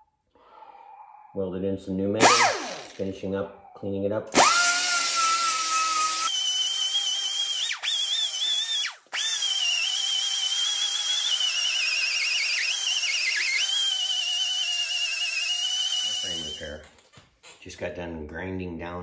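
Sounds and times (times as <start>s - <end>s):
air die grinder whining: 2.2s - 3.1s, 4.3s - 16.8s.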